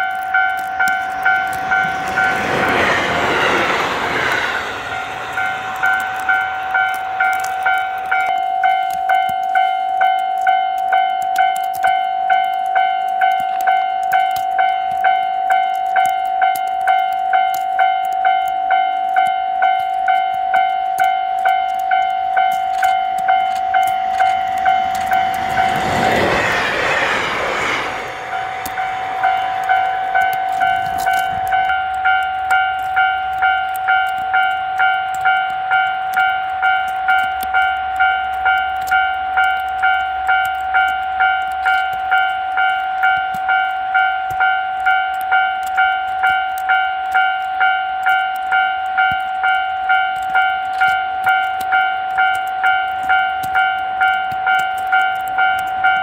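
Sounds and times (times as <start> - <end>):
train rushing by: 0.0 - 9.6, 21.8 - 34.5
level-crossing alarm ringing: 0.0 - 56.0.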